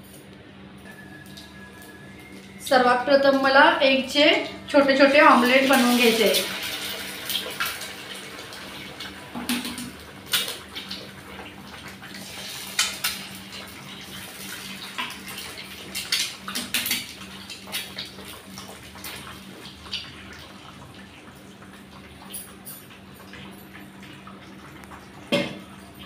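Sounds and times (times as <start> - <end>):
eggs sizzling in frying pan: 4.8 - 22.2.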